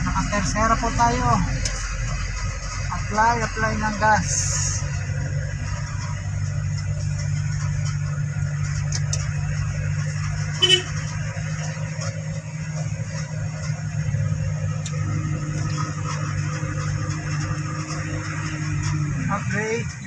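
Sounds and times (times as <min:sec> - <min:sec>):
vehicle engine humming: 0:00.0 - 0:20.0
short horn toot: 0:10.6 - 0:11.0.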